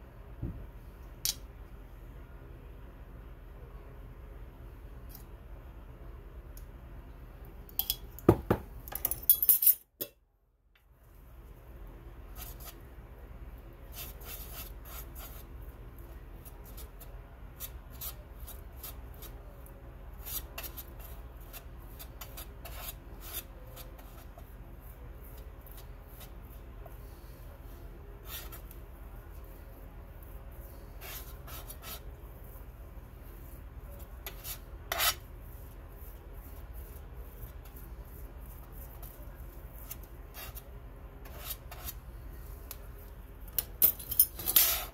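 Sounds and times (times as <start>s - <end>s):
low steady hum: 0.0s - 44.9s
palette knife scraping palette: 20.1s - 27.6s, 30.5s - 32.6s, 33.3s - 42.0s.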